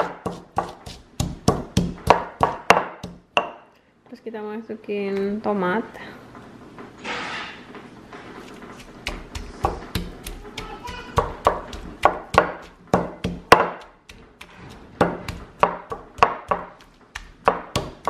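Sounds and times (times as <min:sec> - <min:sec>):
stone pestle pounding in mortar: 0:00.0 - 0:03.6, 0:08.8 - 0:18.0.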